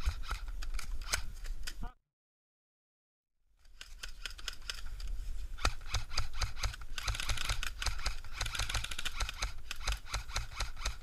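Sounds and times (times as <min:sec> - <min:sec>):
airsoft gun clicks and snaps: 0:03.7 - 0:11.0.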